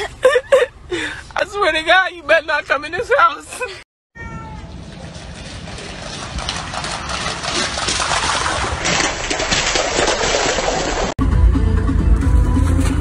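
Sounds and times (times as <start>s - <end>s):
dog splashing through water: 4.8s - 11.2s.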